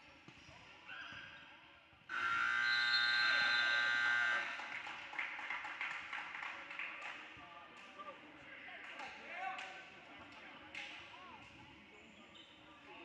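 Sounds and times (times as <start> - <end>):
scoreboard buzzer: 2.1 - 4.6.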